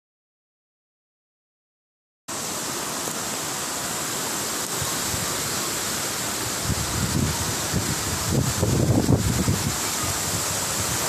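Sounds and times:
floodwater rushing down a channel: 2.3s - 11.0s.

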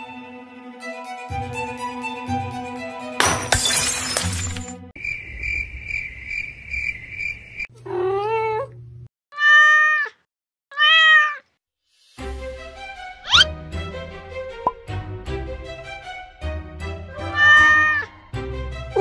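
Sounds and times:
ornaments scattering: 3.2s - 4.8s
cat meowing: 7.8s - 11.5s, 17.1s - 18.1s.

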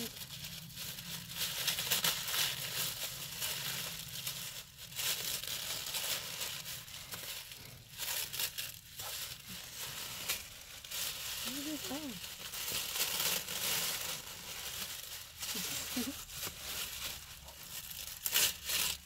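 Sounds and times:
plastic bag and tissue paper rustling: 0.0s - 19.0s.

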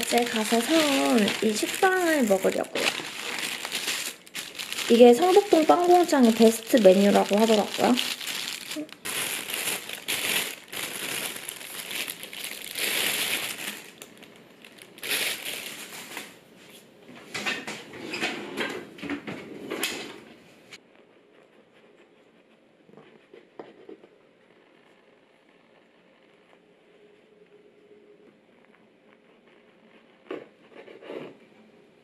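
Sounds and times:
plastic bag crinkling: 0.0s - 16.4s.

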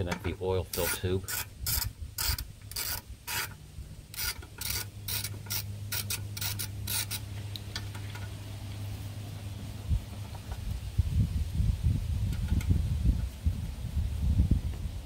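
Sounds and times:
ratchet wrench clicking: 0.7s - 7.2s.

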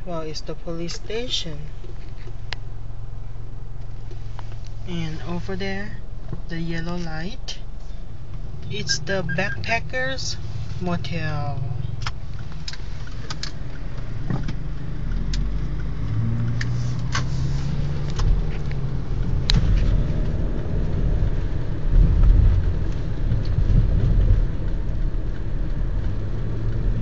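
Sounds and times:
car engine and road noise: 0.0s - 27.0s
light ticks: 12.0s - 20.7s.

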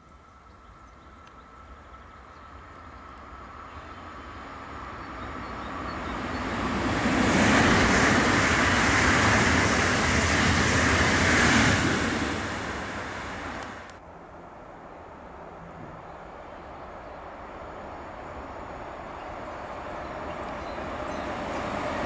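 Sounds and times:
train passing at speed: 0.1s - 22.0s
quiet steady background noise: 13.5s - 21.2s.

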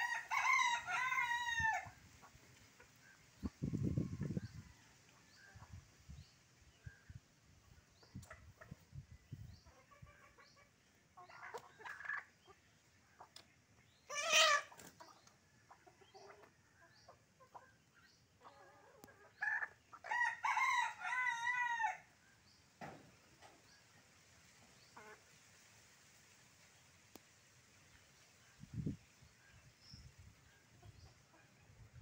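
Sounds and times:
rooster crowing: 0.0s - 1.8s
loud chicken call: 0.0s - 2.0s, 14.1s - 14.8s, 19.4s - 22.0s
chickens clucking: 0.0s - 20.3s, 22.1s - 27.2s, 27.8s - 32.0s.

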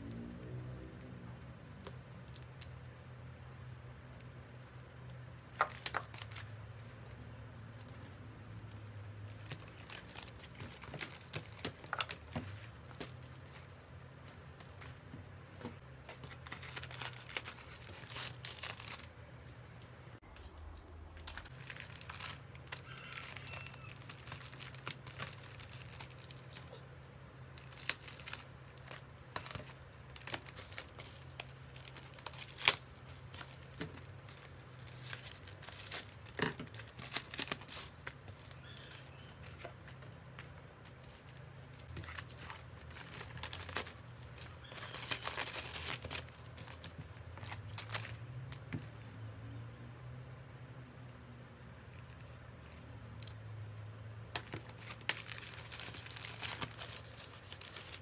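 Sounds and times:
plastic mailers rustling and crinkling: 3.9s - 53.0s, 53.7s - 58.0s.

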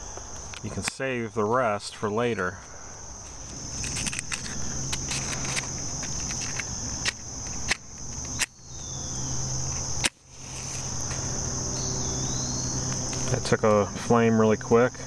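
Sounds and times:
insects droning: 0.0s - 15.0s
hands handling matchbox clicks: 3.3s - 8.6s.

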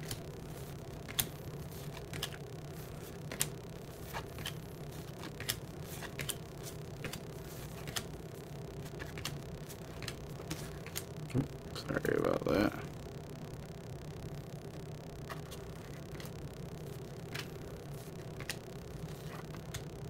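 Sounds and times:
steady low hum: 0.0s - 20.0s
cardboard cards clicking: 1.1s - 2.4s, 3.3s - 8.1s, 8.8s - 11.1s.

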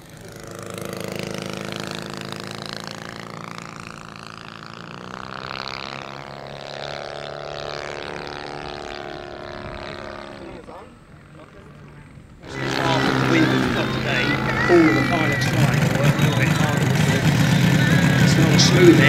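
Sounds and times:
model plane motor and propeller: 0.0s - 19.0s.

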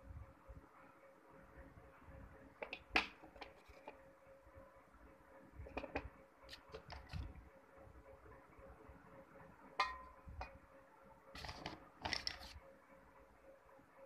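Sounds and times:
metallic tap on pot: 9.8s - 10.2s.

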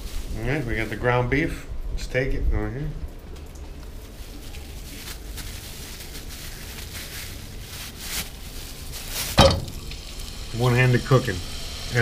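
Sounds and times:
meat sizzling: 8.2s - 12.0s
oil hissing in a saucepan: 8.7s - 12.0s
meat dropping into hot oil: 9.2s - 10.4s.

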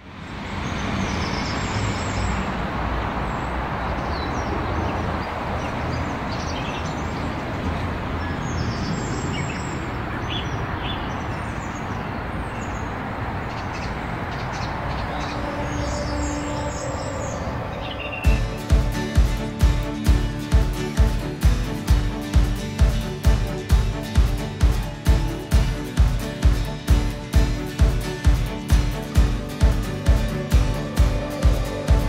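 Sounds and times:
birds chirping and singing: 0.4s - 32.0s
low rushing noise: 12.0s - 32.0s.

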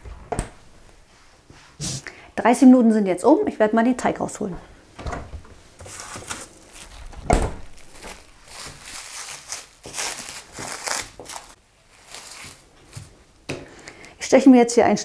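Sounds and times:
cling film crinkling: 5.8s - 13.1s.

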